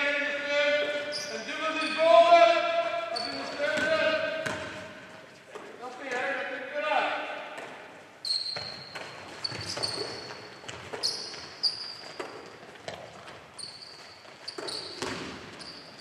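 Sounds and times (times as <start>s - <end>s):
shoes squeaking on hall floor: 0.0s - 6.4s, 7.3s - 16.0s
ball thumps: 3.7s - 4.9s, 15.0s - 15.4s.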